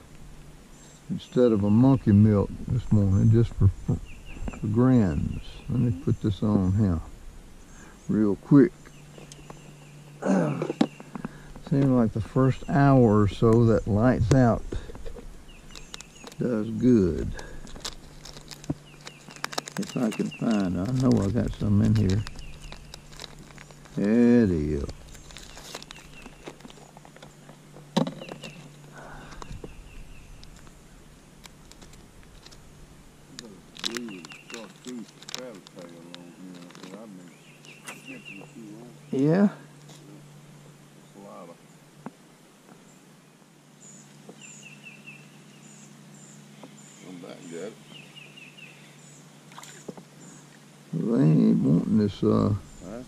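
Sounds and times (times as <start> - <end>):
birds chirping: 0.0 - 53.0
faint steady hum: 0.0 - 53.0
plastic clicks and crinkling: 14.3 - 16.4, 17.6 - 24.1, 24.8 - 29.8, 31.4 - 32.6, 33.4 - 37.0.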